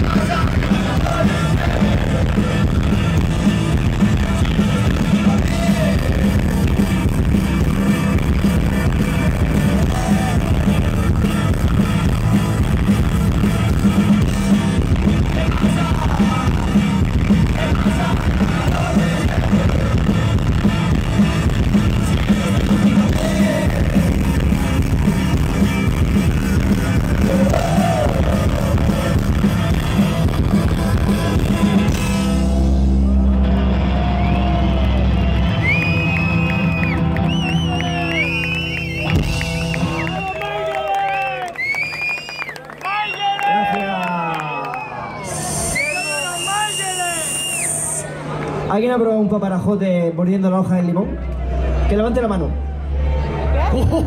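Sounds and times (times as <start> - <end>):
rock band playing live: 0.0 - 40.7
person singing: 15.0 - 20.1, 22.0 - 24.5, 27.0 - 29.3.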